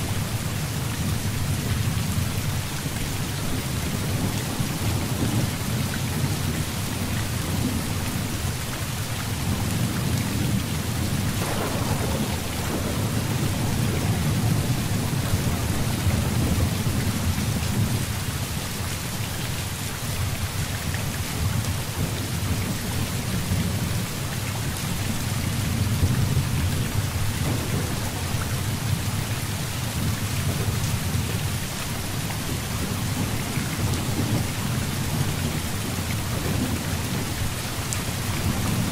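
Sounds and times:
heavy rain: 0.0 - 38.9
thunder rumbling: 9.4 - 18.2, 25.2 - 31.5.

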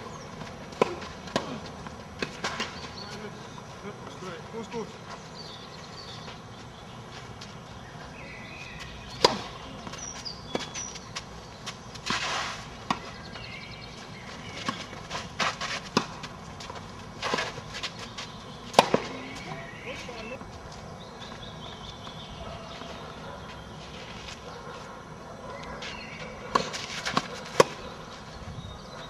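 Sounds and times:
tennis balls struck by rackets: 0.4 - 3.3, 8.8 - 20.4, 25.8 - 28.0.

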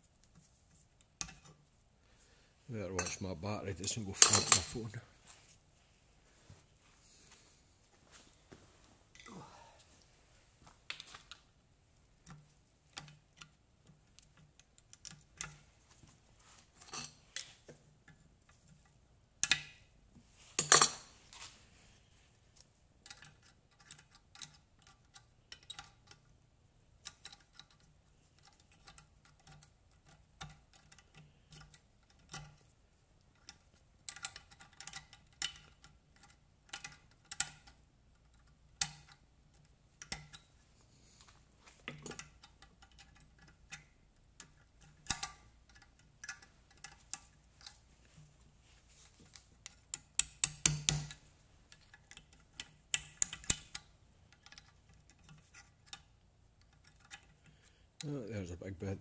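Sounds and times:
hand tools clicking and tapping: 23.0 - 26.3, 27.0 - 40.5, 41.6 - 48.3, 49.0 - 58.1.

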